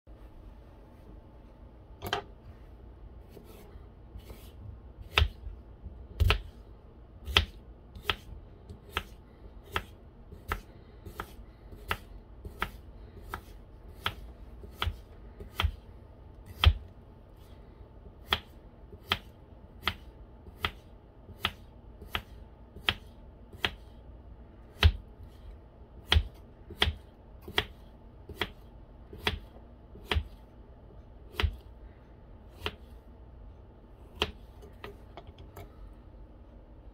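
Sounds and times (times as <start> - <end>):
knife slicing cucumber: 4.2 - 5.4, 7.2 - 15.8, 18.2 - 23.9.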